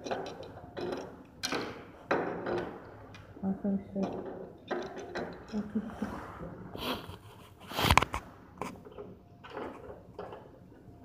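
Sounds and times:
rustling and knocking of objects: 0:06.8 - 0:10.9.

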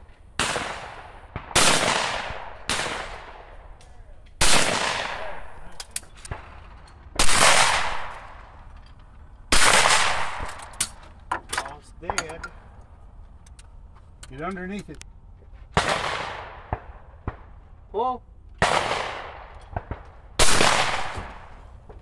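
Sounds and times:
shotgun shots with echo: 0:00.4 - 0:03.8, 0:04.4 - 0:06.6, 0:07.2 - 0:08.4, 0:09.5 - 0:10.6, 0:15.8 - 0:17.5, 0:18.6 - 0:21.6.

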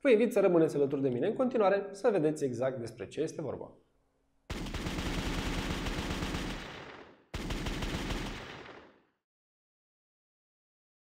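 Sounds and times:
automatic gunfire bursts: 0:04.5 - 0:09.0.

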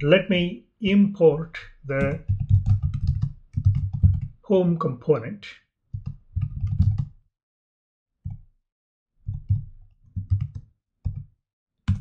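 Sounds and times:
computer keyboard typing: 0:01.9 - 0:04.4, 0:06.0 - 0:07.2, 0:09.3 - 0:11.3.

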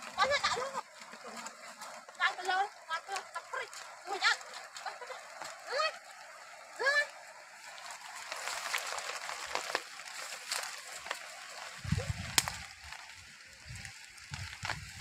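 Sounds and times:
footsteps through dry grass: 0:03.0 - 0:15.0
dry stalk snapping: 0:08.2 - 0:13.1.

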